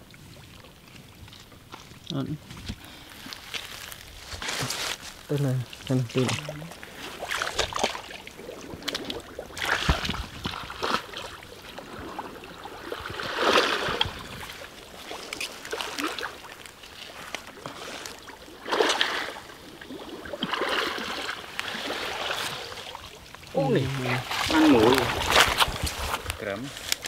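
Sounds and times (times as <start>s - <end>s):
water splashing and sloshing: 0.0s - 27.0s.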